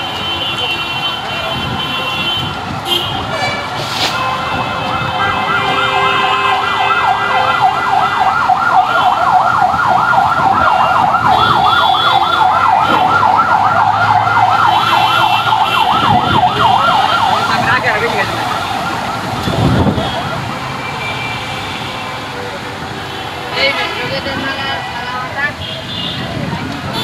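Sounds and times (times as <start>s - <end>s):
siren yelping: 4.8s - 20.8s.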